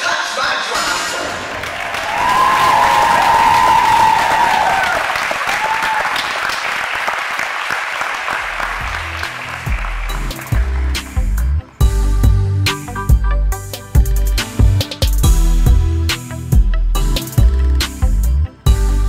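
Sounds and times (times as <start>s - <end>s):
audience applauding: 1.4s - 11.6s
high cheer: 1.5s - 10.8s
music with heavy bass: 8.4s - 19.0s.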